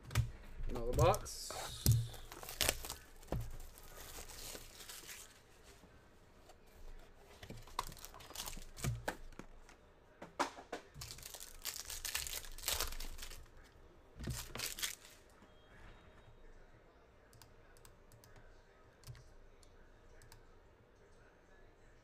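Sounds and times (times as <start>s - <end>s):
wrappers crinkling and tearing: 1.7s - 5.5s, 7.6s - 9.2s, 11.0s - 13.6s, 14.2s - 15.2s.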